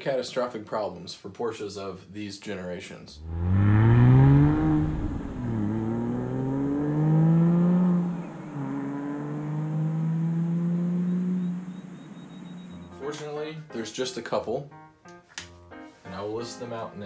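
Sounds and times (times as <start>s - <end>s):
car engine accelerating hard: 3.2s - 13.0s.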